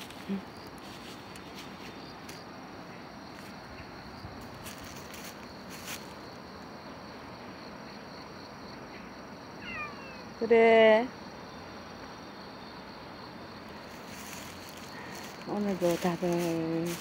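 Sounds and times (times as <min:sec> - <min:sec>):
faint clicks and rustles: 0:00.0 - 0:02.5, 0:13.7 - 0:17.0
high insect chirring: 0:07.6 - 0:17.0.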